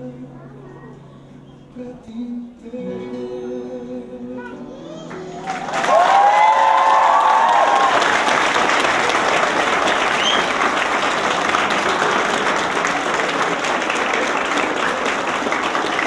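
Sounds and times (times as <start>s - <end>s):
crowd applauding: 5.1s - 16.0s.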